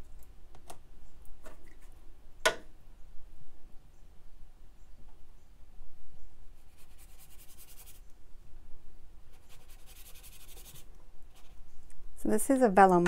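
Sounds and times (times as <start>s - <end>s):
brush scrubbing on paper: 6.6s - 8.0s, 9.3s - 11.6s.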